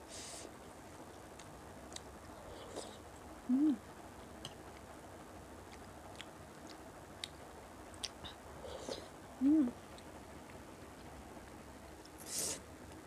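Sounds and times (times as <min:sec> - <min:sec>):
closed-mouth hum: 0:00.0 - 0:13.0
mouth clicks while chewing: 0:08.0 - 0:08.3.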